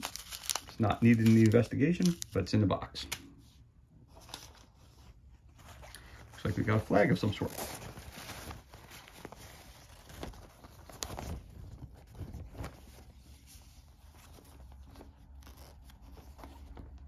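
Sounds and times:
fabric flag rustling: 4.0 - 17.0.

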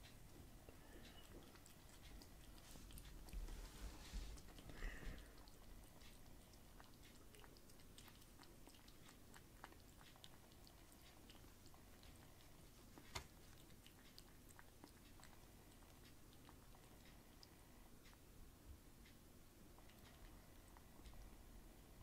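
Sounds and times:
kitten lapping water: 0.0 - 22.0.

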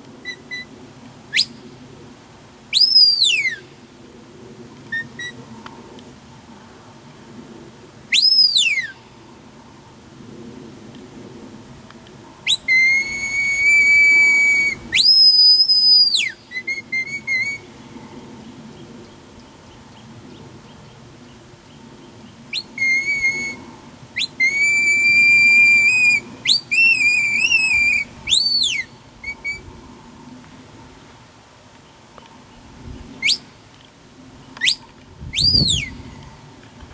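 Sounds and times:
shrill whistle notes: 2.8 - 3.6, 8.1 - 8.9, 12.5 - 17.6, 22.6 - 23.6, 24.2 - 29.6, 35.4 - 36.0.

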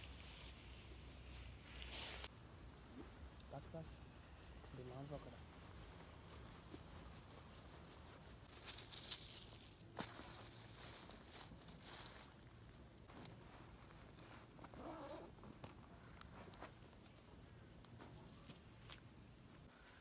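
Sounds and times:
tent fabric rustling: 0.0 - 2.3, 5.2 - 20.0
high-pitched insect drone: 0.0 - 15.8.

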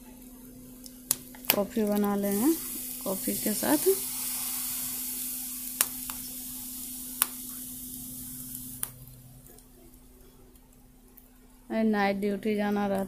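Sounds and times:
food sizzling in oil: 0.9 - 9.3.

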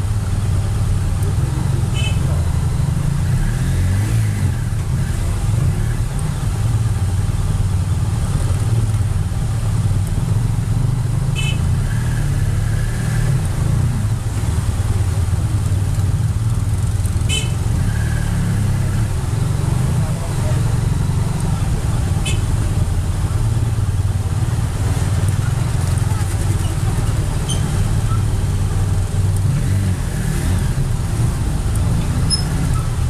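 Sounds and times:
motorcycle engine rumbling: 0.0 - 33.0.

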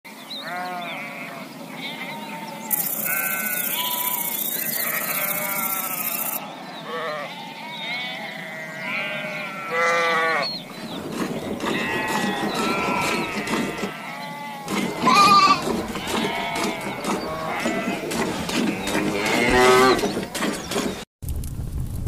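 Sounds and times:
sheep bleating: 0.4 - 10.6, 11.6 - 20.1
steady high hiss: 2.8 - 6.4.

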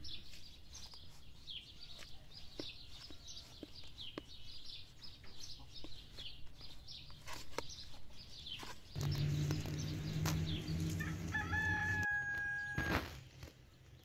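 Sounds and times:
small birds chirping: 0.0 - 14.0
low steady hum: 9.0 - 12.8
rooster crowing: 9.1 - 13.2.

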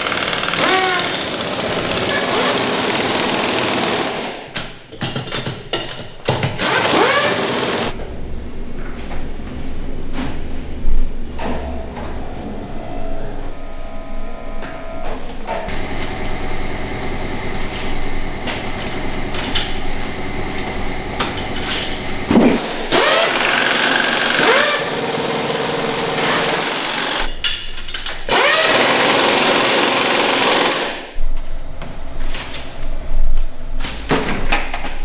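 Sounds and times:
factory machinery humming: 6.6 - 27.4.

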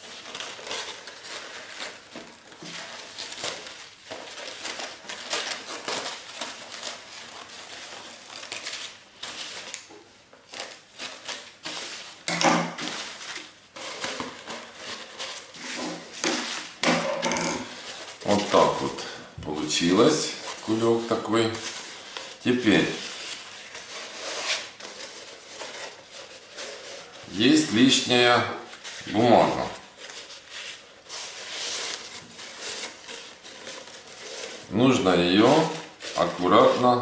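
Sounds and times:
paper rustling and crinkling: 0.0 - 37.0.

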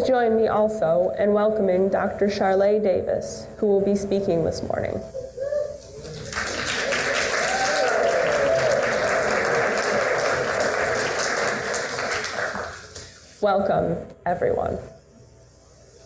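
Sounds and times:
crowd applauding: 6.0 - 13.0.

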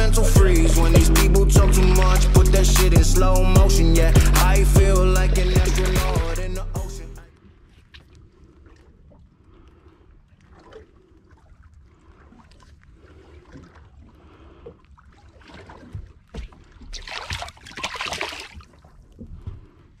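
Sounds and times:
low steady rumble: 0.0 - 10.2
fish splashing into water: 15.1 - 19.0.

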